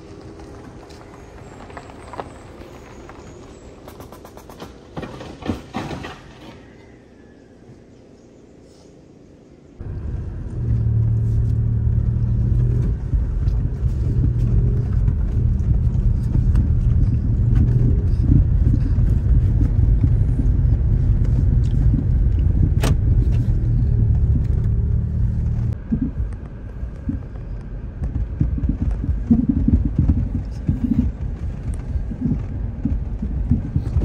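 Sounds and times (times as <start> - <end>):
tyres rumbling on gravel: 0.0 - 6.8, 9.8 - 34.0
car engine hum: 9.8 - 34.0.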